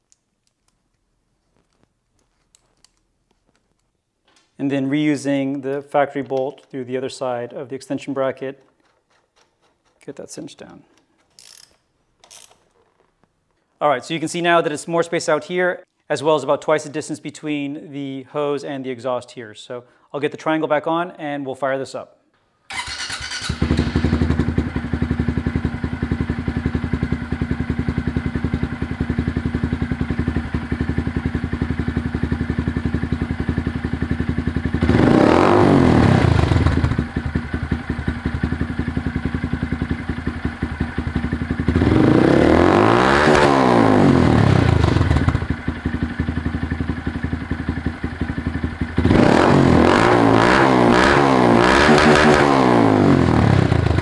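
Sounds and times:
motorcycle engine idling and revving: 22.7s - 54.0s.

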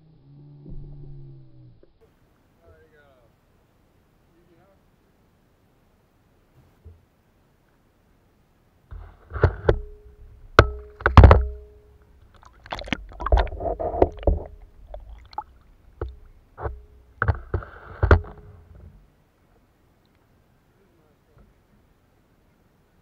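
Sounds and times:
sharp knocks: 8.9s - 11.8s, 16.0s - 19.0s
water splashing and sloshing: 10.4s - 19.1s.

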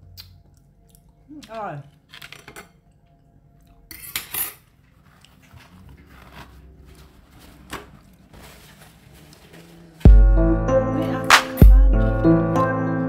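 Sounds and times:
shells and tableware clinking: 3.9s - 4.7s
faint handling noises: 4.4s - 10.1s.

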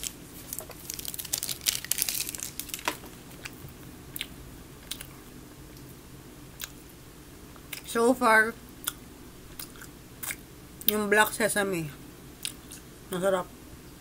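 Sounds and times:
person chewing candy: 0.0s - 5.2s, 8.8s - 11.0s.

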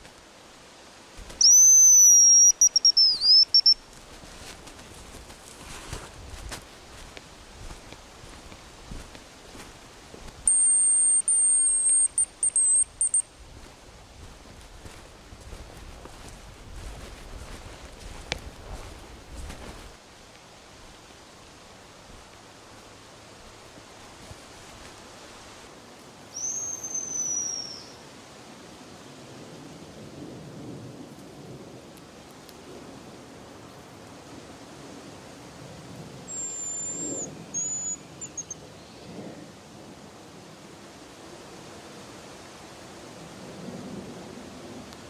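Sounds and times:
steady background hiss: 0.0s - 45.0s
high bird call whistle: 1.3s - 3.8s, 10.5s - 13.3s, 26.3s - 28.0s, 36.3s - 38.6s.

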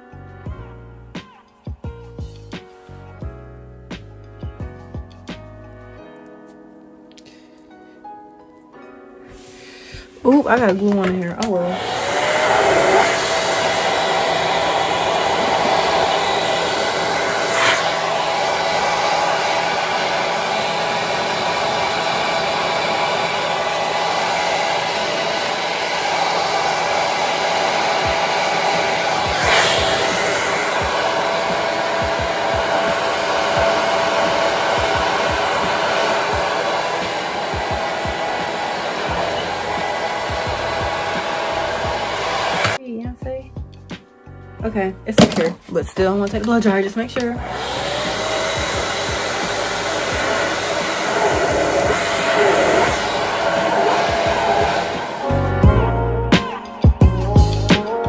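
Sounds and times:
hair dryer blowing: 9.3s - 42.8s, 45.1s - 58.0s.

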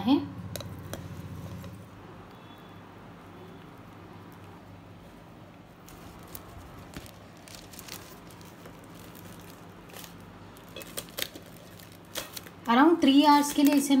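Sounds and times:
steady low hum: 0.0s - 12.7s
kitchen clicks and scrapes: 0.5s - 1.8s.

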